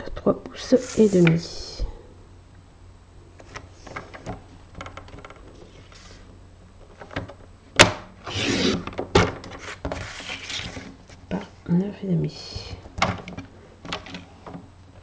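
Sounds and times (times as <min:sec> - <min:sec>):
paper rustling: 0:09.4 - 0:11.3.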